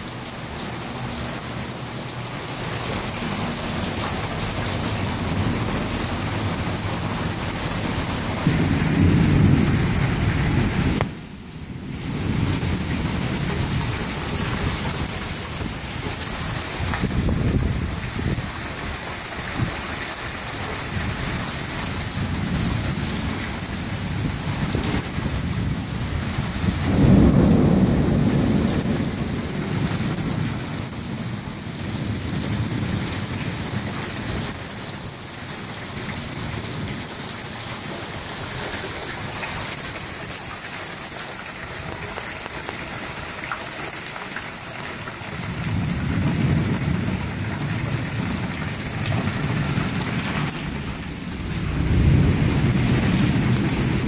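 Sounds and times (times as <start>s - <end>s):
heavy rain falling: 0.0s - 54.0s
rolling thunder: 4.8s - 18.6s, 22.0s - 33.4s, 45.5s - 54.0s.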